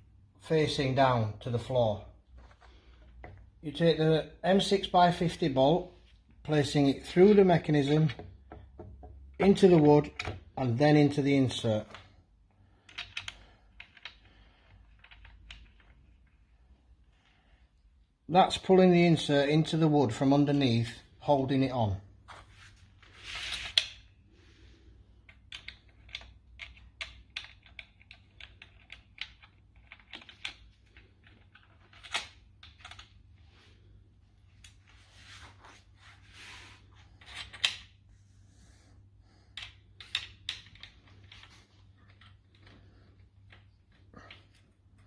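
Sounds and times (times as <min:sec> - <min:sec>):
metal parts clicking and tapping: 0:12.8 - 0:16.4, 0:25.2 - 0:33.2, 0:39.5 - 0:45.0.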